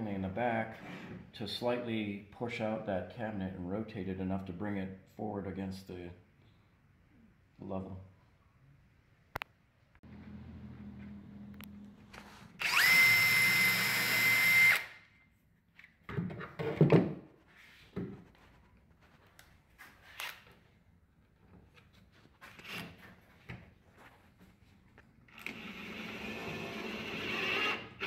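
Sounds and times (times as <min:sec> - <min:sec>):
cordless drill whining: 0:12.6 - 0:15.0, 0:25.3 - 0:28.0.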